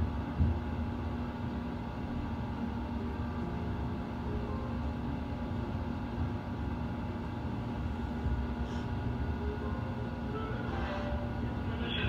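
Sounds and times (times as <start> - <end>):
electric train rumbling: 3.0 - 12.0.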